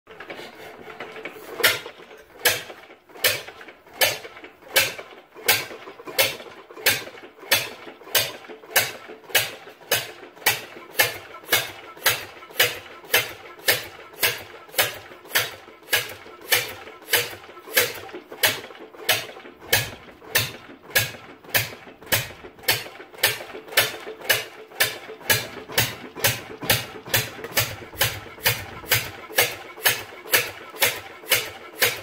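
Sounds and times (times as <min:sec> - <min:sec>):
hand cranking clatter: 0:00.1 - 0:32.0
diesel engine firing with bangs: 0:13.7 - 0:32.0.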